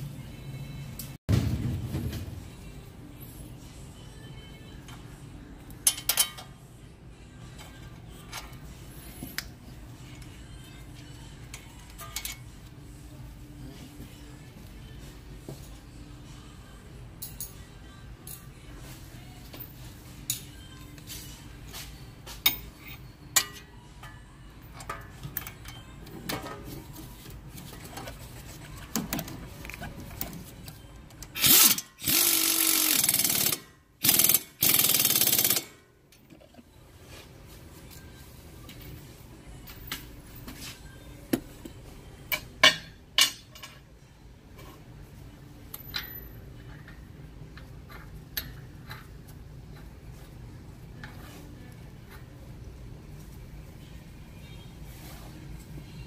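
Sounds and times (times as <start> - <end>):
impact wrench bursts: 31.4 - 35.8.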